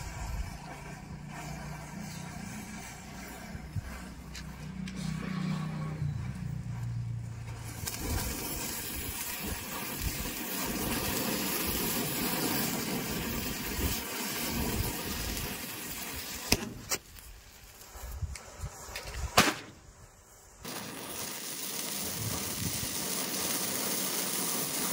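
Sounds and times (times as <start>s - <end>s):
fireworks hissing: 0.0s - 24.9s
firecracker bang: 16.0s - 17.1s, 19.0s - 19.9s, 20.6s - 24.9s.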